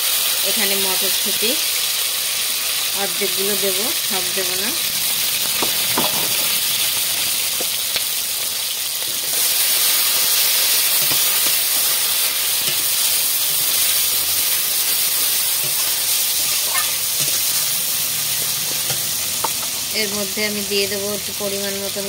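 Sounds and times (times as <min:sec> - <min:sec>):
vegetables sizzling in hot oil: 0:00.0 - 0:22.0
metal spatula stirring: 0:12.5 - 0:14.6, 0:15.5 - 0:17.6.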